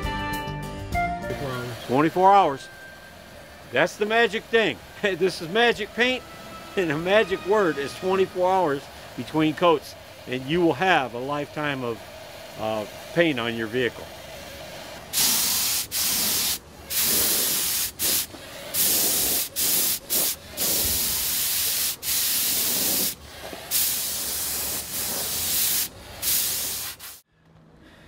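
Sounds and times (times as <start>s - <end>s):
paint spray gun hissing: 15.1s - 27.2s.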